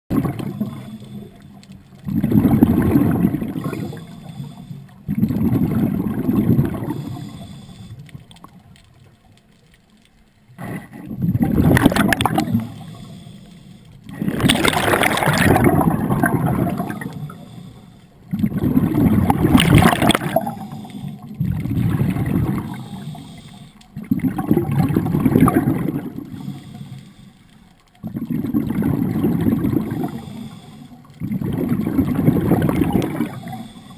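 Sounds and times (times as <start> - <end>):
regulator exhale bubbling: 0.1 - 8.1, 10.6 - 33.9
sharp breath hiss: 12.6 - 13.9, 17.2 - 18.2, 22.7 - 23.8, 26.3 - 27.5.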